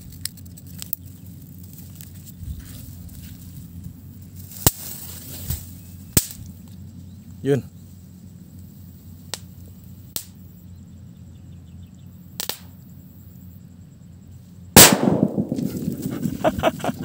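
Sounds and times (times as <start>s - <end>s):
firecracker bang: 14.8s - 17.0s
rumbling echo: 14.8s - 17.0s.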